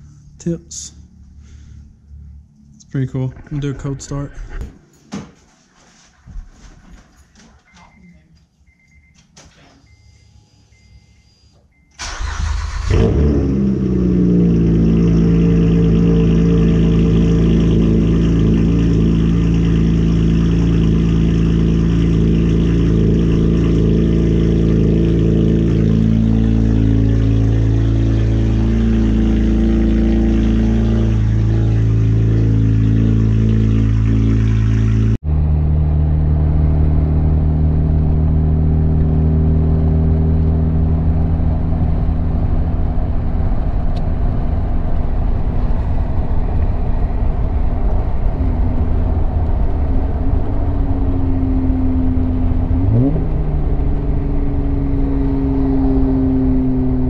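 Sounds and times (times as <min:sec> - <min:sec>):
car engine droning while driving: 0:00.0 - 0:04.4, 0:09.9 - 0:57.0
road noise: 0:00.0 - 0:05.0, 0:12.0 - 0:57.0
car engine idling: 0:12.0 - 0:57.0.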